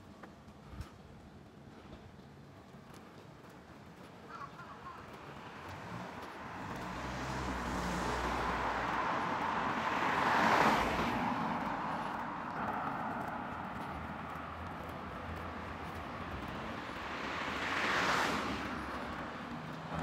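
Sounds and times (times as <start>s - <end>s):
car passing: 4.3s - 20.0s.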